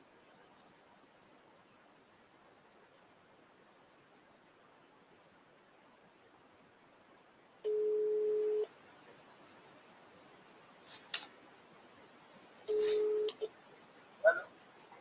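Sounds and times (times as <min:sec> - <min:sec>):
telephone ringback tone: 0:07.7 - 0:08.6, 0:12.7 - 0:13.4.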